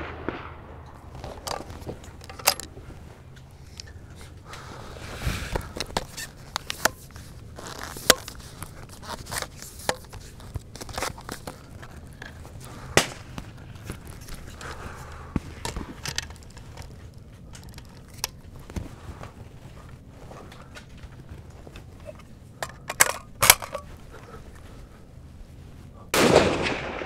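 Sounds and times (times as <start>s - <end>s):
tripod clicks and knocks: 1.0s - 4.6s, 5.5s - 19.4s, 20.5s - 24.0s.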